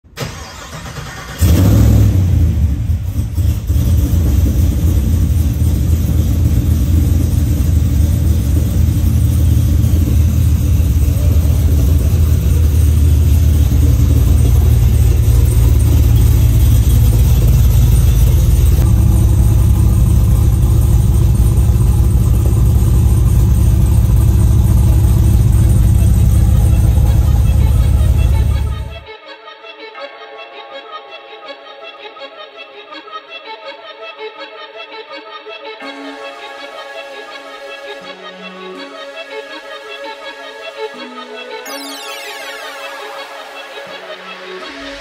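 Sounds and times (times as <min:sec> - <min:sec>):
engine starting and idling: 0:00.0 - 0:29.0.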